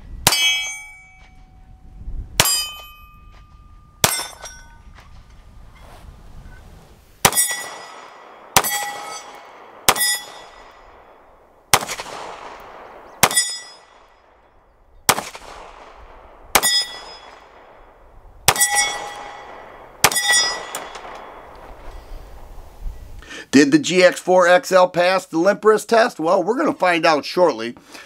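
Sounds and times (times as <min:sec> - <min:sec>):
steel target clanging: 0:00.3 - 0:01.5, 0:02.4 - 0:05.0, 0:07.2 - 0:11.2, 0:13.2 - 0:14.6, 0:16.6 - 0:17.5, 0:18.5 - 0:22.2
pistol shots: 0:04.0 - 0:04.5, 0:07.2 - 0:14.4, 0:15.1 - 0:21.7.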